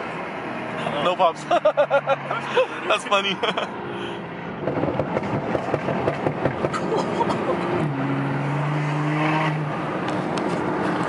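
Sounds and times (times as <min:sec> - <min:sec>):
exhaust crackling and popping: 0:04.6 - 0:07.5.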